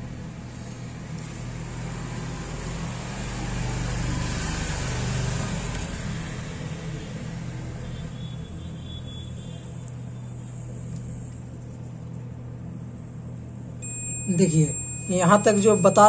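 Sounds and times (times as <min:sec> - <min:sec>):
steady low hum: 0:00.0 - 0:04.1, 0:05.2 - 0:16.0
passing vehicle rumble: 0:01.4 - 0:07.8.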